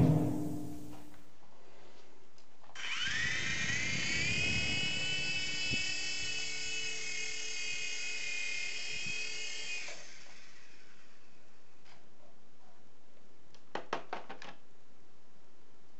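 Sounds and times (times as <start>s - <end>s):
toy helicopter motor whine: 2.8s - 11.8s.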